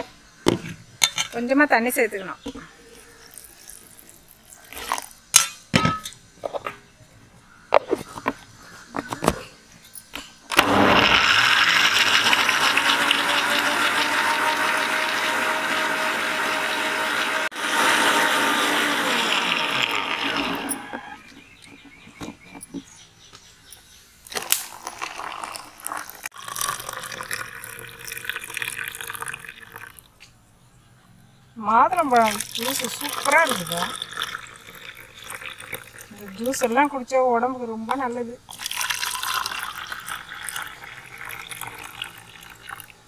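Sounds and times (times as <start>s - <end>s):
juice pouring and splashing: 3.2s - 5.2s, 10.6s - 17.5s, 24.3s - 30.1s, 32.1s - 36.8s, 38.5s - 43.0s
electric blender running: 10.5s - 21.2s.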